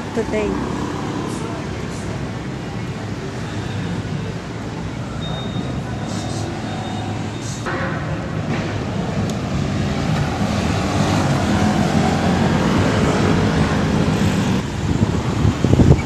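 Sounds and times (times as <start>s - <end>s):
vehicles passing: 0.0s - 16.0s.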